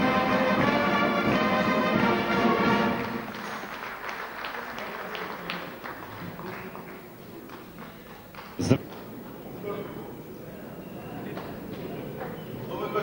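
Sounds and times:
music with long held chords: 0:00.0 - 0:03.4
people clapping: 0:00.0 - 0:13.0.

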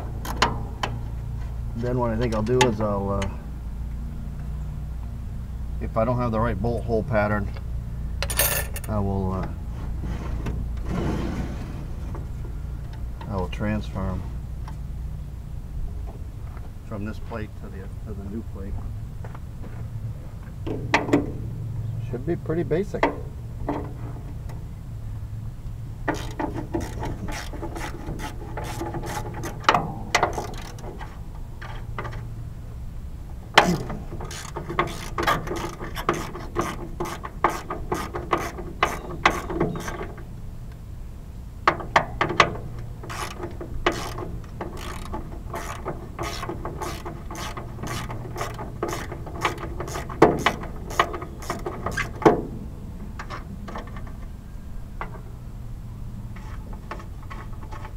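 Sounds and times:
ratchet wrench clicking: 0:26.1 - 0:30.9, 0:33.6 - 0:40.0, 0:43.1 - 0:52.2.

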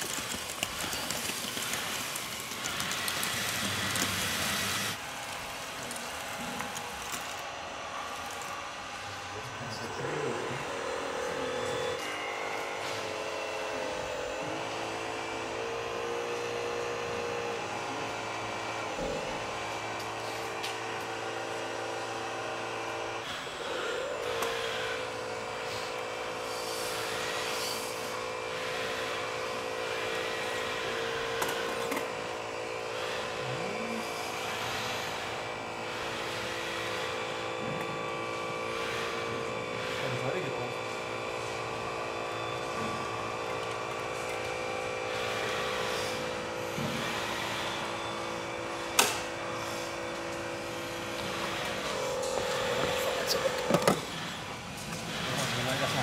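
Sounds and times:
hydraulic pump whining: 0:00.0 - 0:56.0.

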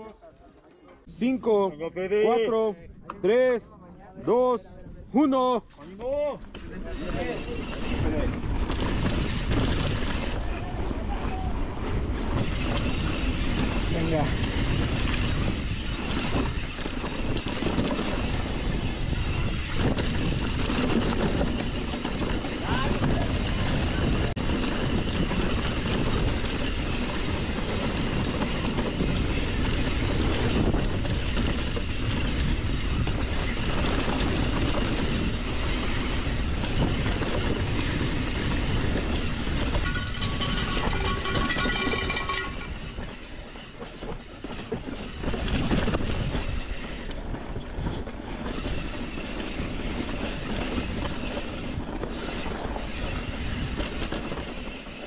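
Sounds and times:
bike rattling over bumps: 0:06.6 - 0:10.4, 0:11.3 - 0:55.0
wind rush: 0:07.0 - 0:43.2.

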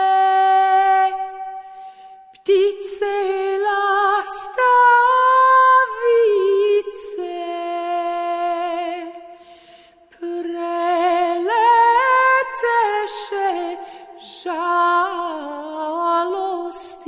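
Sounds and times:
woman singing unaccompanied: 0:00.0 - 0:01.6, 0:02.4 - 0:09.3, 0:10.1 - 0:17.0.

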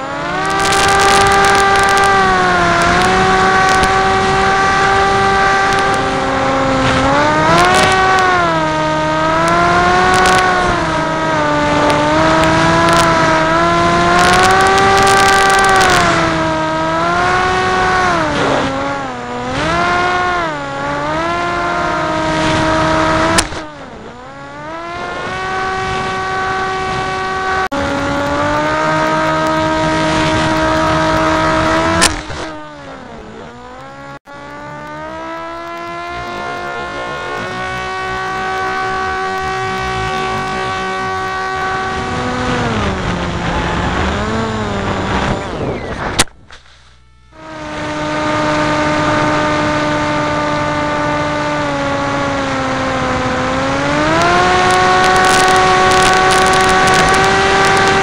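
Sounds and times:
propeller motor buzzing: 0:00.0 - 0:58.0
sharp click: 0:30.4 - 0:32.7.

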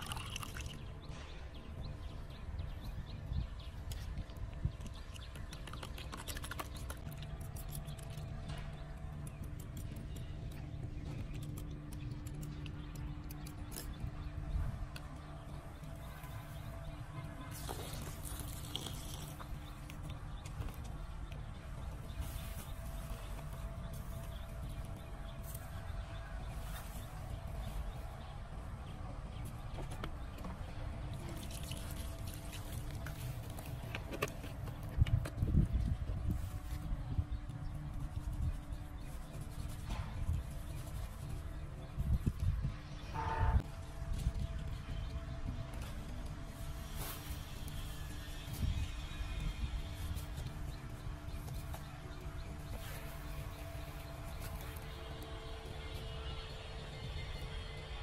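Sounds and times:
low background rumble: 0:00.0 - 0:58.0.

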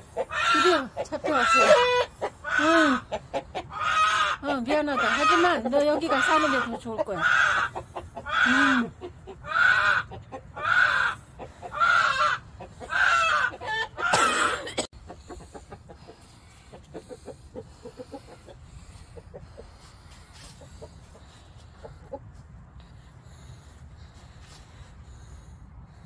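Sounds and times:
chicken clucking: 0:00.0 - 0:14.4, 0:15.0 - 0:22.5
chicken squawking loudly: 0:00.0 - 0:14.4.

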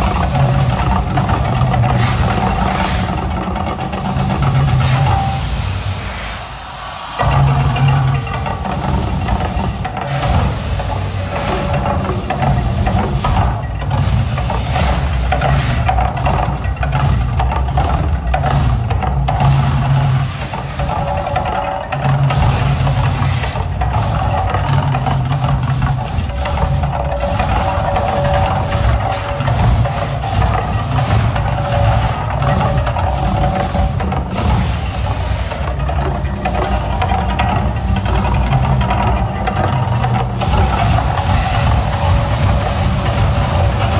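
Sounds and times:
sharp hits: 0:00.0 - 0:11.8
fire jets rushing hiss: 0:00.0 - 0:13.6
low rumble: 0:00.0 - 0:13.9
percussion-driven music: 0:00.0 - 0:43.9.

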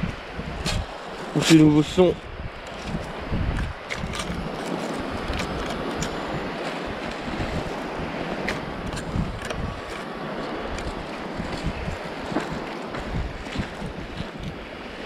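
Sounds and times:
wind buffeting microphone: 0:00.0 - 0:15.0
footsteps on pebbly sand: 0:02.7 - 0:14.7.

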